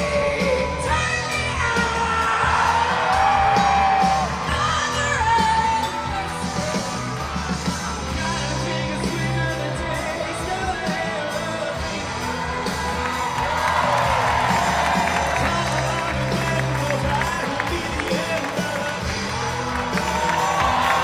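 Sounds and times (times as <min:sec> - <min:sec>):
drums: 0:00.0 - 0:21.0
man singing into microphone: 0:08.2 - 0:12.1, 0:15.4 - 0:19.5.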